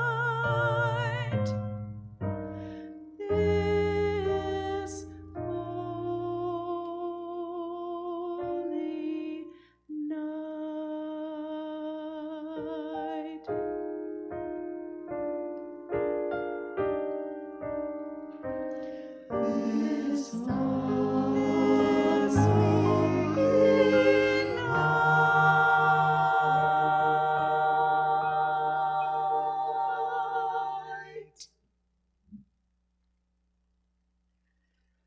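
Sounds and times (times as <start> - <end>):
piano chords: 12.6 - 31.2
vocal ensemble singing: 19.3 - 31.4.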